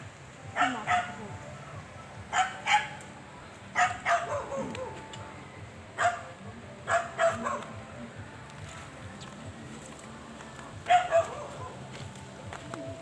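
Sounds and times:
dog barking: 0:00.6 - 0:01.2, 0:02.3 - 0:03.0, 0:03.8 - 0:05.0, 0:06.0 - 0:06.3, 0:06.9 - 0:07.7, 0:10.9 - 0:11.8.

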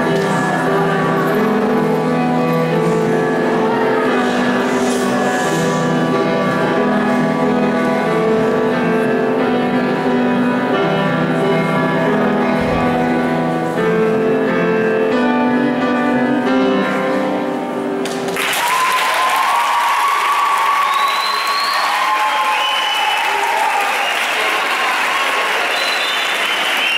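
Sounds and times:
upright piano playing chords: 0:00.0 - 0:18.4
applause: 0:18.0 - 0:26.9.

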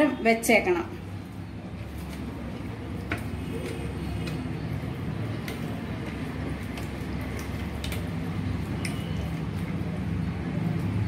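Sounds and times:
faint clicks and clinks on plate: 0:08.8 - 0:09.2.

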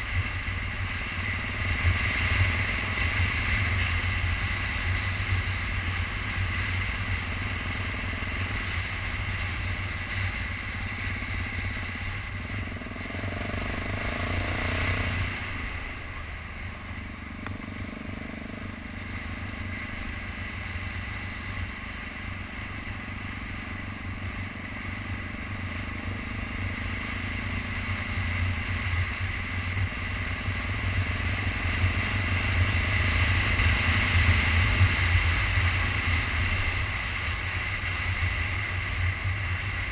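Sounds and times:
motorcycle engine running: 0:00.0 - 0:39.9
wind and road noise: 0:00.0 - 0:39.9.

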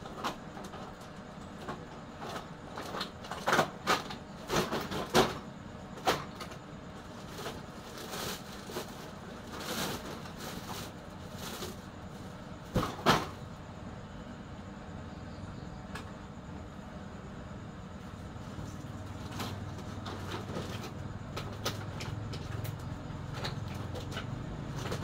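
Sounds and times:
plastic sack rustling: 0:07.1 - 0:13.4.

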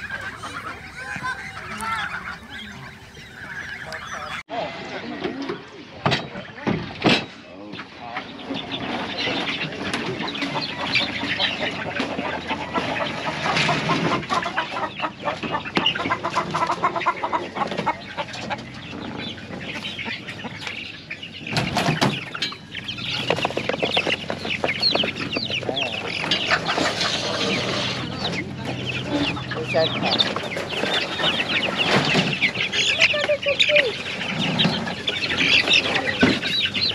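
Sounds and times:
chickens clucking: 0:00.0 - 0:36.9.

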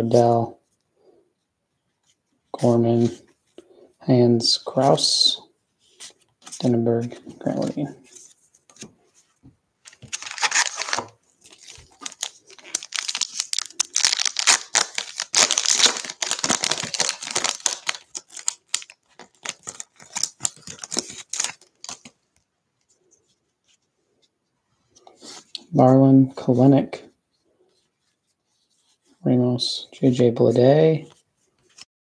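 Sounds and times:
foil wrapper tearing and crinkling: 0:09.9 - 0:22.2.

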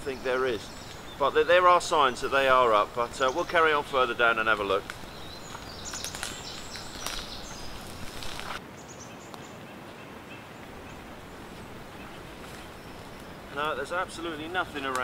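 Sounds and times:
high bird calls: 0:00.0 - 0:15.0
footsteps through dry leaves: 0:03.6 - 0:08.6, 0:11.0 - 0:13.6.

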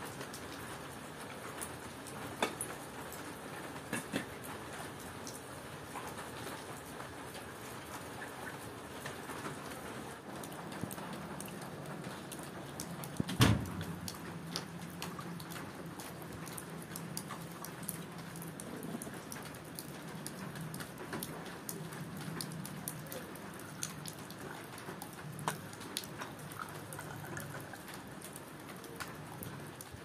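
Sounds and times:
steady rain: 0:00.0 - 0:30.0
water drips: 0:03.8 - 0:30.0
tea pouring into a glass: 0:26.5 - 0:27.9.

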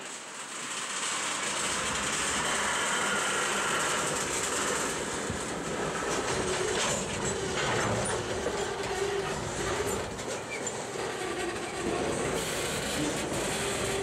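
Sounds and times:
train wheels rumbling on track: 0:00.0 - 0:14.0
faint wheel squeal: 0:06.5 - 0:14.0.

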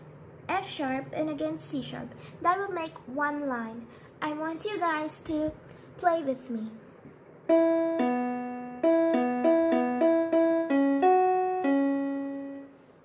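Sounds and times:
electronic keyboard piano melody: 0:07.5 - 0:12.9.

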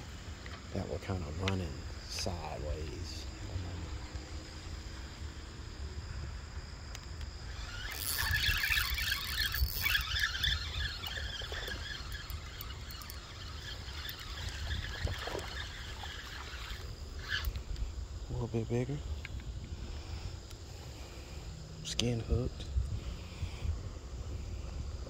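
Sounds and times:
light ticks from reel: 0:06.9 - 0:17.9
spinning reel working hard: 0:07.4 - 0:18.9.

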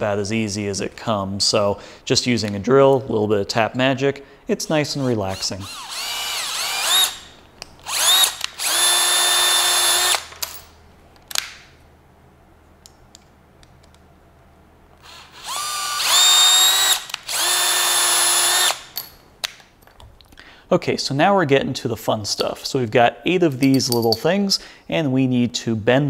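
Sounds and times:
cordless drill motor whining: 0:05.4 - 0:10.2, 0:15.0 - 0:18.9.

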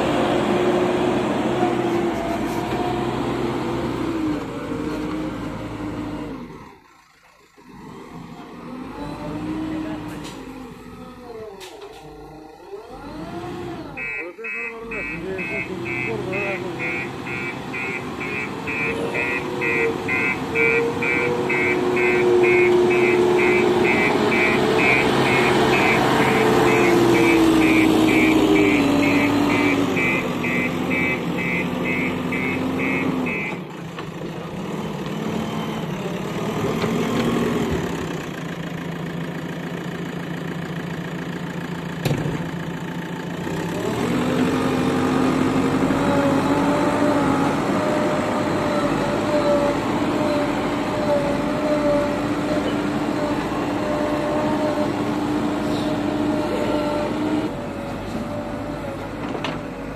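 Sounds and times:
diesel engine running under work: 0:00.0 - 0:59.9
repeating high beep: 0:14.0 - 0:33.5.

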